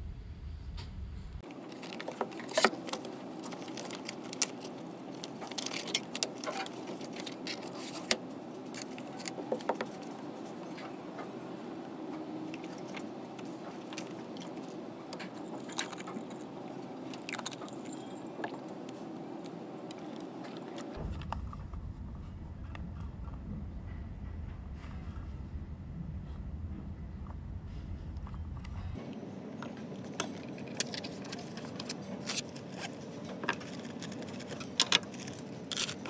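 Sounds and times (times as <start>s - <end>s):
room hum: 0.0s - 36.0s
pages flipping and rustling: 1.4s - 11.4s, 30.4s - 36.0s.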